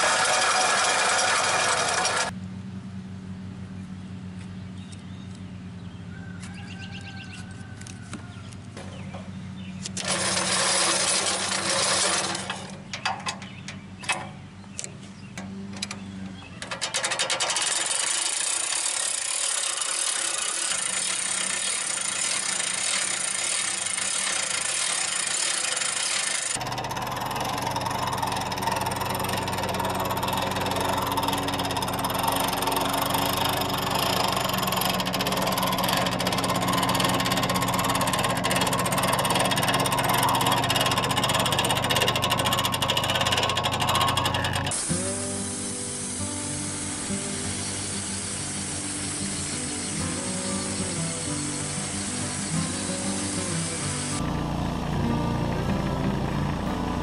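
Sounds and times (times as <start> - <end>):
winch ratcheting clicks: 0.0 - 2.3, 9.8 - 14.9, 16.6 - 44.8
sawmill engine running: 0.0 - 2.5, 6.2 - 57.0.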